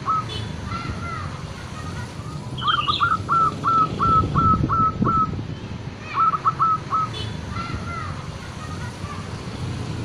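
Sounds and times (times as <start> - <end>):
dove cooing: 2.6 - 5.3, 6.1 - 7.1.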